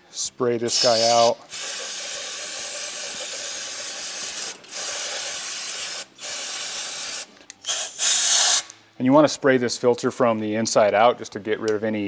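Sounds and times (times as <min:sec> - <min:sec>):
aerosol spray can hissing: 0:00.7 - 0:08.7.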